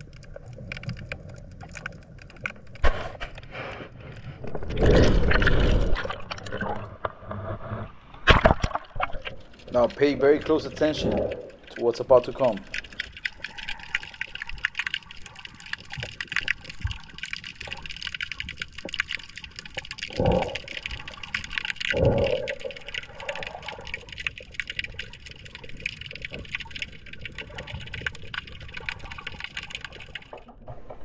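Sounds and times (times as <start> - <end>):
underwater crackle of clicks: 0.0 - 7.6, 8.2 - 30.6.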